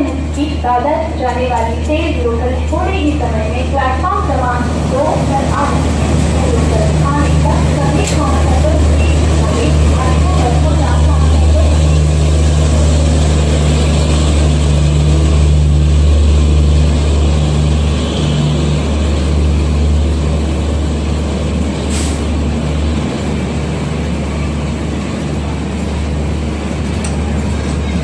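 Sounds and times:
diesel locomotive drone: 0:00.0 - 0:28.0
train wheels rumbling on rails: 0:00.0 - 0:28.0.

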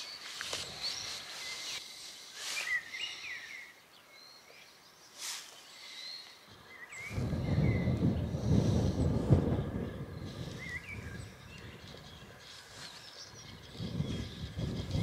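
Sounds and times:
soft rustles: 0:00.0 - 0:02.9
small birds chirping: 0:00.0 - 0:15.0
wind rumble on microphone: 0:06.5 - 0:15.0.

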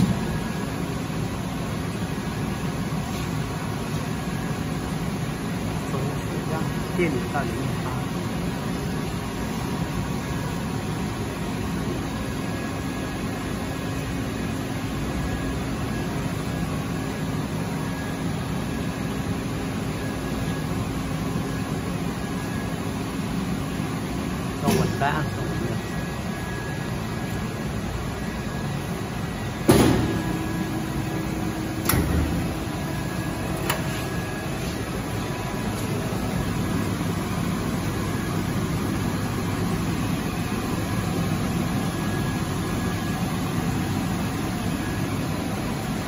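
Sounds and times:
machine hum: 0:00.0 - 0:46.0
welding machine hum: 0:25.9 - 0:40.0.

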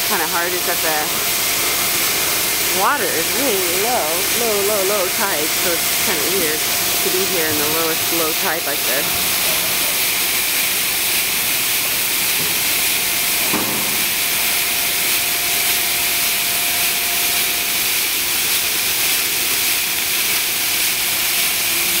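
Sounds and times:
ice rushing through hose: 0:00.0 - 0:22.0.

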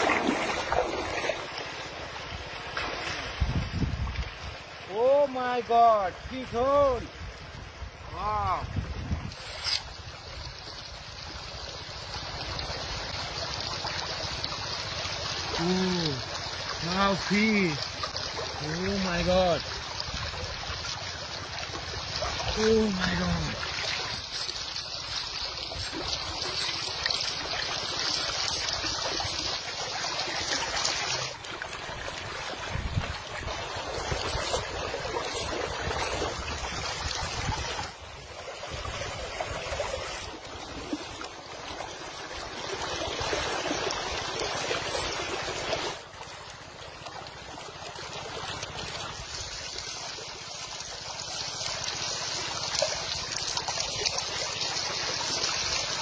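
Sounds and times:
river water rushing: 0:00.0 - 0:08.6, 0:09.3 - 0:56.0.

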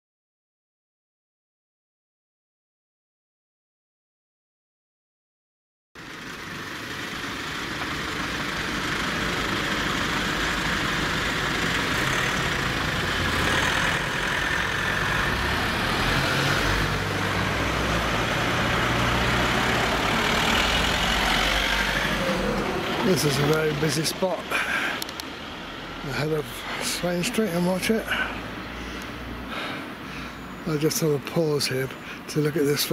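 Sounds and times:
steady road noise: 0:06.0 - 0:32.9
vehicle engines at low speed: 0:06.0 - 0:32.9.

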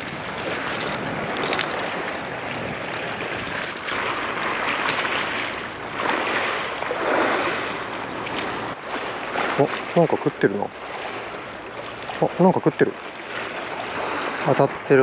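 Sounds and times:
wind on microphone: 0:00.0 - 0:09.8
sea waves washing against breakwater: 0:00.0 - 0:15.0.

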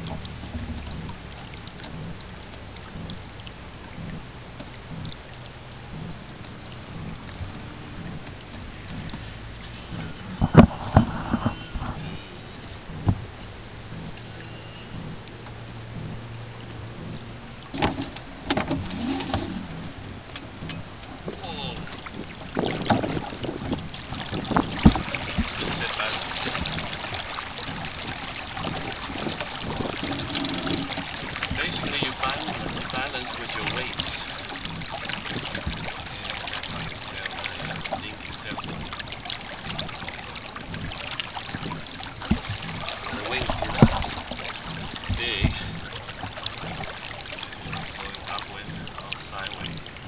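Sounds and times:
low steady hum: 0:00.0 - 0:50.0
water lapping against hull: 0:00.0 - 0:50.0
low thump: 0:03.9 - 0:05.2, 0:06.9 - 0:12.2, 0:12.8 - 0:14.2, 0:14.9 - 0:15.3, 0:15.9 - 0:16.2, 0:40.6 - 0:47.0
short creak: 0:08.9 - 0:13.2
wooden knocks: 0:41.5 - 0:46.9.

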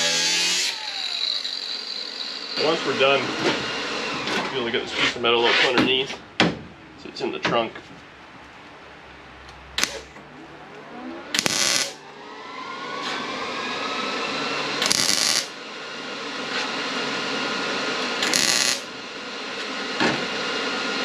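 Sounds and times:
welder whirring: 0:00.0 - 0:04.8, 0:09.8 - 0:10.2, 0:11.3 - 0:21.0
welding arc bursts: 0:09.8 - 0:10.1, 0:11.3 - 0:12.0, 0:14.8 - 0:15.6, 0:18.1 - 0:19.1.

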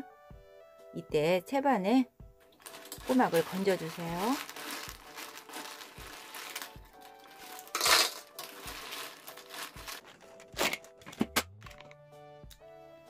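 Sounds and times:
background music with steady beat: 0:00.0 - 0:13.0
shells clattering in metal strainer: 0:02.6 - 0:10.8.

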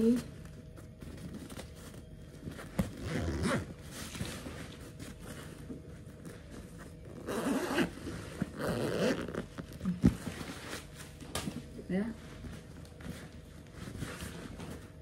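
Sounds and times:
backpack zipper pulled: 0:03.0 - 0:03.7, 0:07.1 - 0:09.5.

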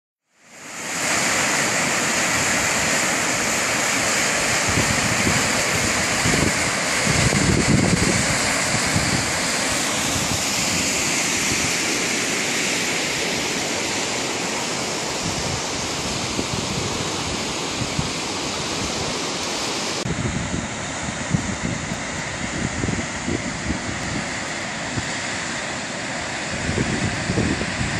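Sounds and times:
waterfall rushing: 0:00.4 - 0:27.9
wind buffeting microphone: 0:04.5 - 0:12.0, 0:15.2 - 0:19.2, 0:20.0 - 0:25.2, 0:26.5 - 0:27.9.

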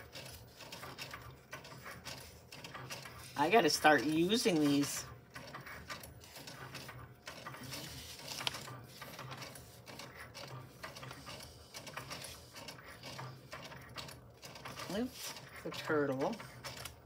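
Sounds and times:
small mechanical clicks: 0:00.0 - 0:17.0
card stock rustling: 0:05.9 - 0:13.7.

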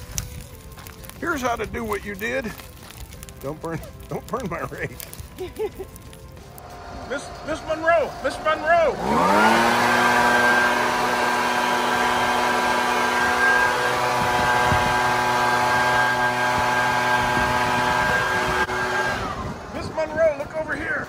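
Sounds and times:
motor humming: 0:06.5 - 0:19.8.

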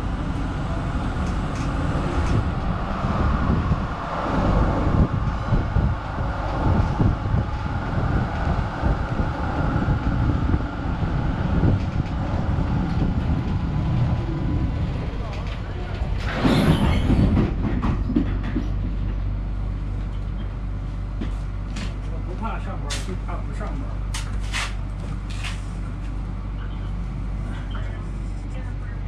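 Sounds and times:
tram knocks and jolts: 0:00.0 - 0:28.0
tram wheels rumbling on rails: 0:00.0 - 0:29.0.

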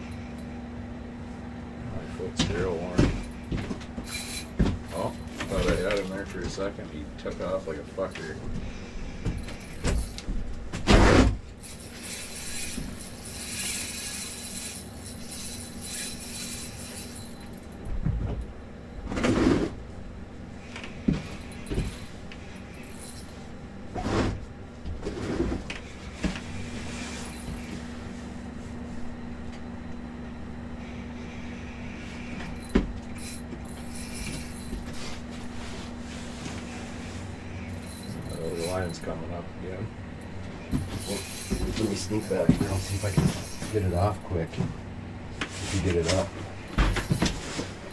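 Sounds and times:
steady low hum: 0:00.0 - 0:47.9
gear knocking and rustling: 0:02.3 - 0:18.6, 0:20.7 - 0:23.4, 0:32.2 - 0:39.2, 0:40.2 - 0:44.8, 0:45.7 - 0:47.9.

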